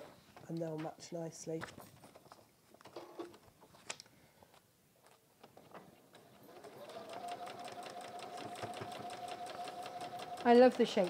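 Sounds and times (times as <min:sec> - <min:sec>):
sewing machine stitching: 0:06.1 - 0:11.0.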